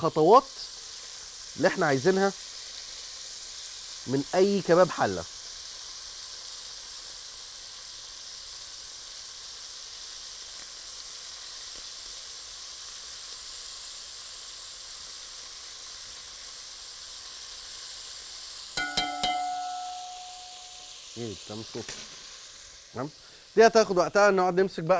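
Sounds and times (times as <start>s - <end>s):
meat sizzling in hot fat: 0.0s - 24.9s
short ringing clink: 18.8s - 20.9s.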